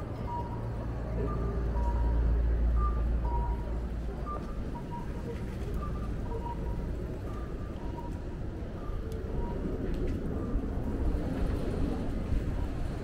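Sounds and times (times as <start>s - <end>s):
vehicle engine rumble passing: 0.0s - 13.0s.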